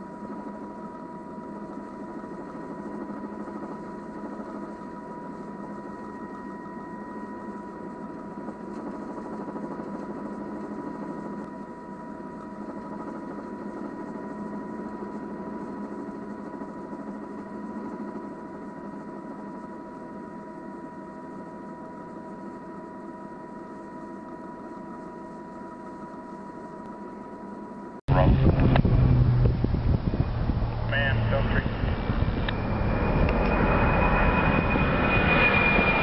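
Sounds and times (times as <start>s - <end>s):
aircraft engine drone: 0.0s - 36.0s
high whine: 20.0s - 36.0s.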